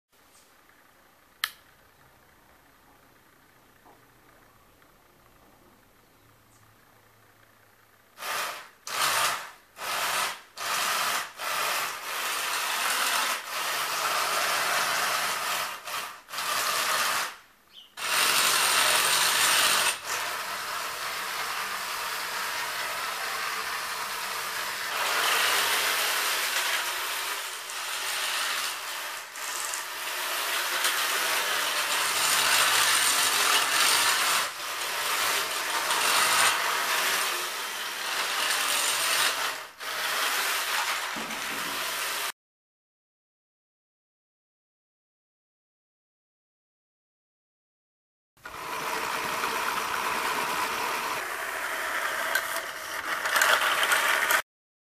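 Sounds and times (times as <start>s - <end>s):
rc tracked vehicle grinding clatter: 8.2s - 42.3s, 48.4s - 54.4s.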